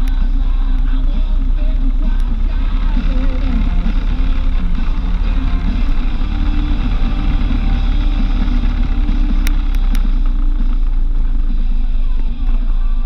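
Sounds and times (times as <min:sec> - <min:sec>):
car engine and tyre rumble: 0:00.0 - 0:13.0
sharp clicks: 0:01.6 - 0:11.6.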